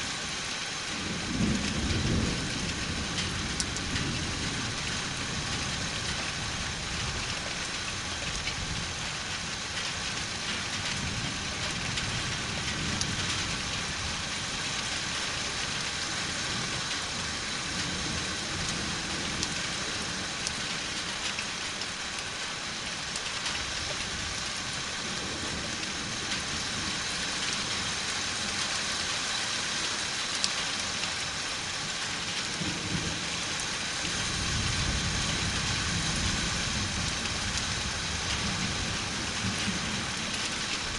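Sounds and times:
steady rain falling: 0:00.0 - 0:40.9
distant thunder rumble: 0:01.0 - 0:07.7.

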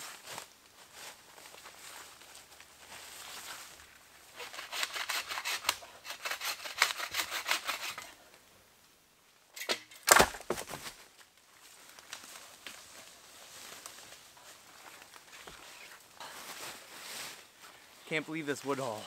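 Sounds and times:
footsteps crunching dry leaves: 0:00.0 - 0:03.9, 0:11.6 - 0:19.0
sharp crack with thump: 0:09.6 - 0:10.8.

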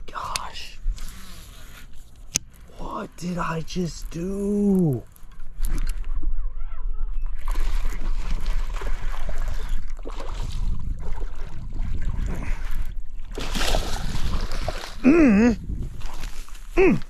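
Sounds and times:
fish splashing at water surface: 0:13.3 - 0:15.0.

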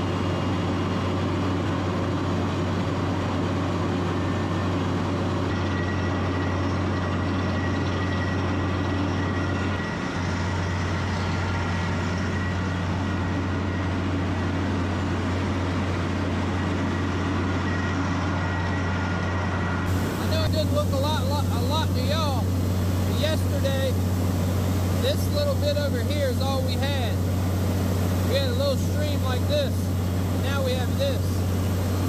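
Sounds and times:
diesel engine under load: 0:00.0 - 0:32.0
thin high whine: 0:16.7 - 0:32.0.

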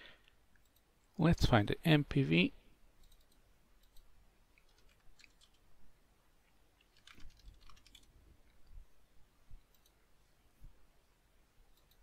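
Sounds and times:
computer keyboard typing: 0:03.0 - 0:05.6, 0:06.8 - 0:08.6.

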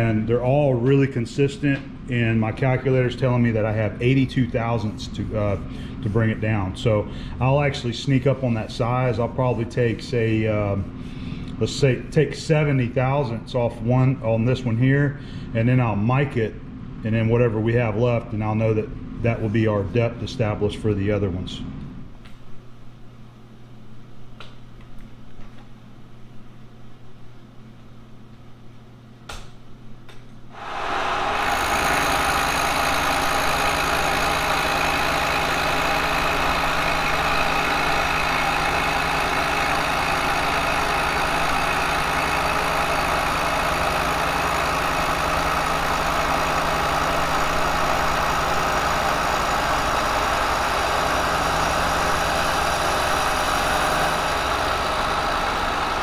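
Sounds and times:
faint hum: 0:00.0 - 0:42.0
milling machine running: 0:30.6 - 0:56.0.

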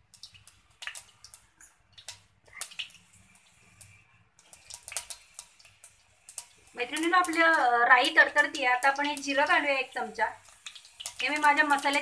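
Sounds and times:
mustard seeds spluttering in oil: 0:00.0 - 0:12.0.

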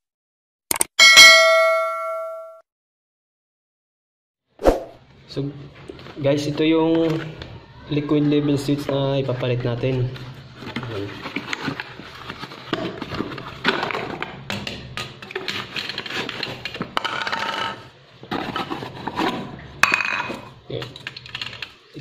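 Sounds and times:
cardboard rustling and scraping: 0:10.1 - 0:14.2, 0:18.2 - 0:19.6.

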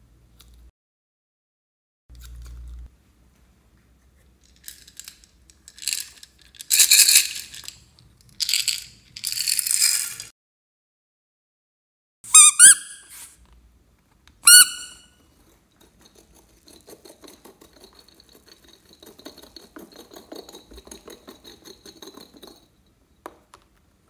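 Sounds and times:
rubber toy ball squeaking: 0:12.3 - 0:13.1, 0:14.4 - 0:15.1.

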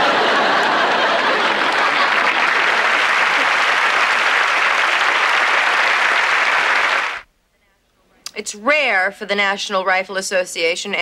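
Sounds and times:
studio audience applauding: 0:00.0 - 0:07.2.

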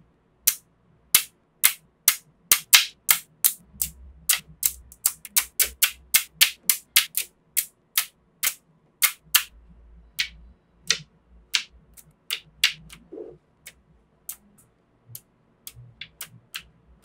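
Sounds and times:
magnetic balls clicking together: 0:00.5 - 0:09.5, 0:10.2 - 0:17.0.

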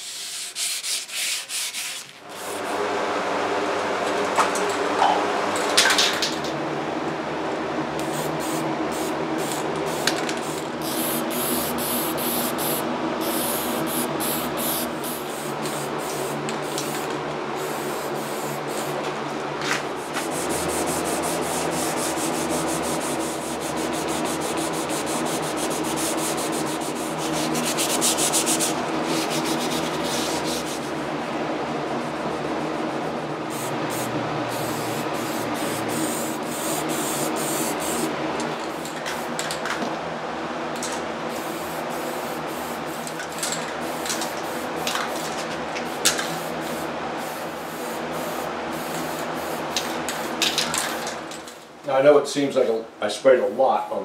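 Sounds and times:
sandpaper rubbing wood: 0:00.0 - 0:02.6, 0:20.0 - 0:31.0.

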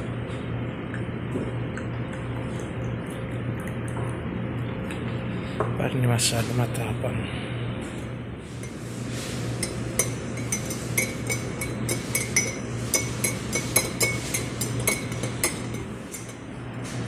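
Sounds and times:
spoon clinking in ceramic mug: 0:09.6 - 0:16.4.

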